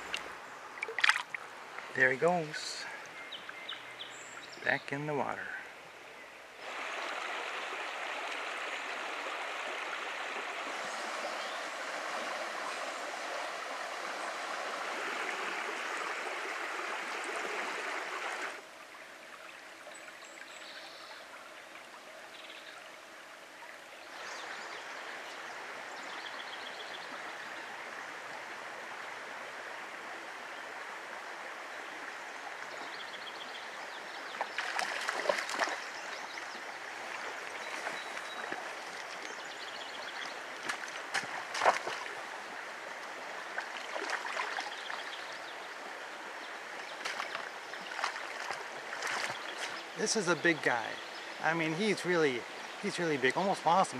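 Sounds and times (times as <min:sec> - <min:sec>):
fish splashing at surface: 0:00.0 - 0:01.4, 0:40.6 - 0:42.1
stream trickling over stones: 0:00.0 - 0:05.5, 0:06.5 - 0:53.9.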